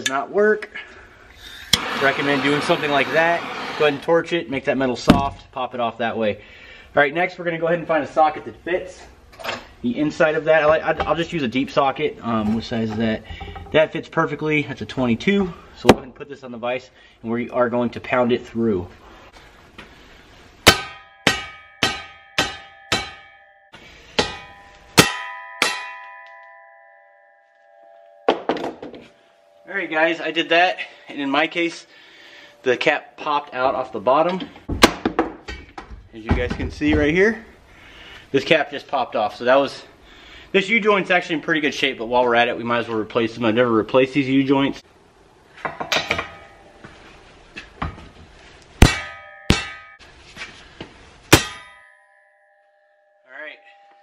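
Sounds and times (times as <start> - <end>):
hammer clanging on metal: 20.6 - 23.4, 24.1 - 26.5, 45.6 - 46.8, 48.8 - 50.1, 51.3 - 52.0.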